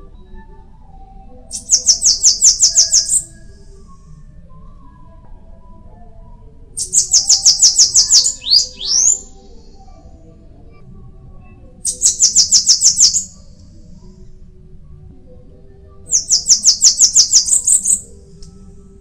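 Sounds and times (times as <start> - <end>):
bird singing high thin notes: 6.8 - 9.4, 11.9 - 13.4, 16.1 - 18.0.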